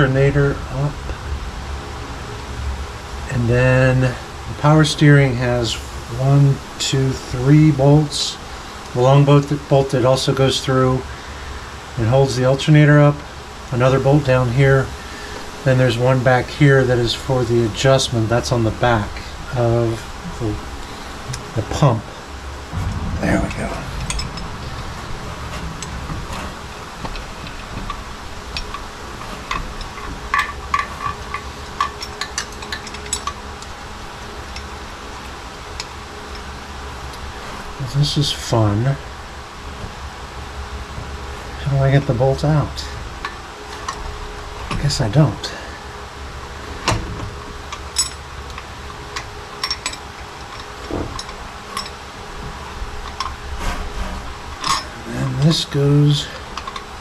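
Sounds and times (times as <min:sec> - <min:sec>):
steady low hum: 0:00.0 - 0:57.0
metal parts clicking and clinking: 0:25.5 - 0:33.4, 0:47.7 - 0:52.0, 0:54.6 - 0:55.0, 0:56.4 - 0:56.9.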